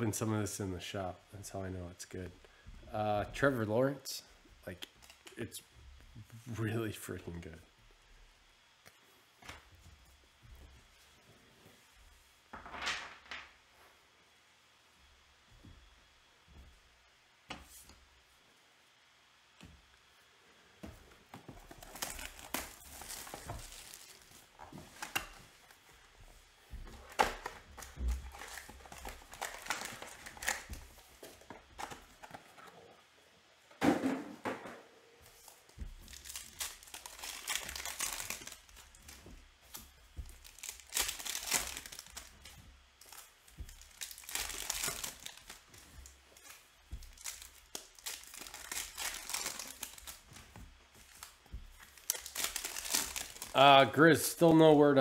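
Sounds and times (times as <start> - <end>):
foil wrappers crinkling and tearing: 21.6 - 26.0, 26.8 - 32.5, 35.4 - 53.7.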